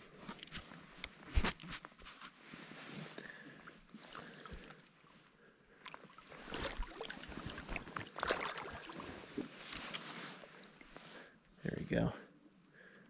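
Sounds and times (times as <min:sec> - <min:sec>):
water splashing and sloshing: 0:02.5 - 0:11.1.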